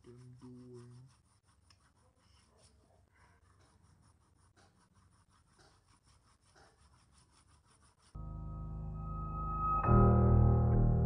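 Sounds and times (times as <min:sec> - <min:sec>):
pencil scratching on paper: 0:00.0 - 0:08.2.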